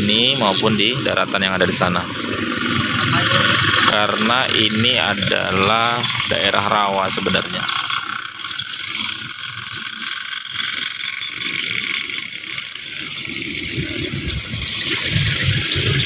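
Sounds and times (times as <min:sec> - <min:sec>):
small engine rattling: 0:00.0 - 0:16.0.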